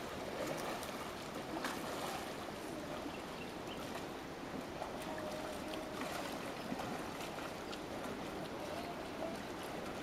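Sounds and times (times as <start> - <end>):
river water rushing: 0.0 - 10.0
people splashing in water: 4.8 - 10.0.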